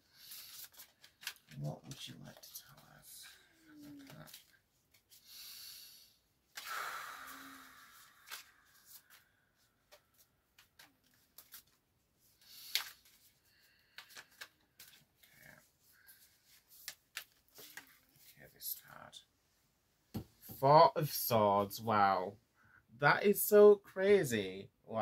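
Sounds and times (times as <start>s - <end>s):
cards being shuffled: 0.2s - 2.9s, 3.8s - 5.2s, 7.9s - 9.3s, 9.9s - 11.8s, 12.4s - 15.4s, 16.0s - 18.3s.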